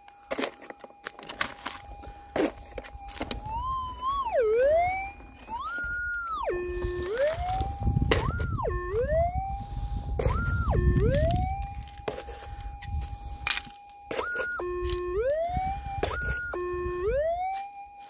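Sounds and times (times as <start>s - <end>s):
metal detector target signal: 10.2s - 17.7s
metal detector threshold tone: 10.2s - 18.0s
soil scraping in plastic scoop: 11.2s - 12.6s.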